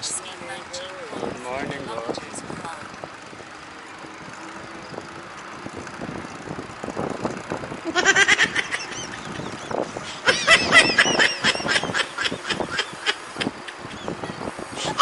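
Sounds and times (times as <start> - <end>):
bicycle rolling noise: 0.0 - 14.8
wind on microphone: 4.1 - 15.0.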